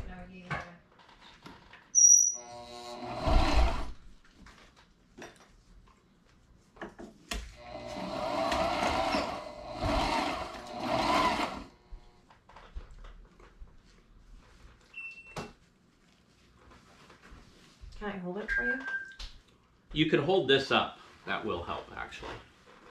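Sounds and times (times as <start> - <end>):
high squeaky click: 2.0 - 2.4
sewing machine stitching: 2.4 - 4.0, 7.6 - 11.8.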